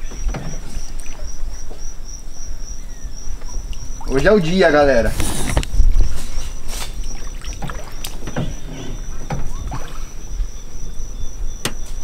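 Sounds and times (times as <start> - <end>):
boat knocking: 0.0 - 2.0, 6.9 - 12.0
thin steady high tone: 0.0 - 5.1, 5.8 - 12.0.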